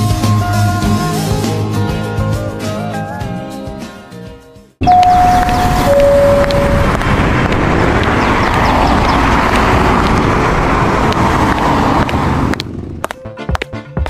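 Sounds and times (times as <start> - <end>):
vehicle noise: 4.8 - 14.0.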